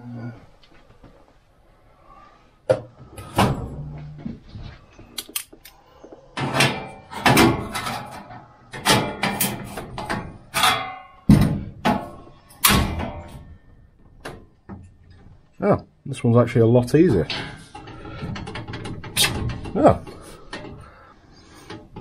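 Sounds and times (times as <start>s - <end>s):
sheet metal clanking: 6.2s - 15.4s, 16.8s - 22.0s.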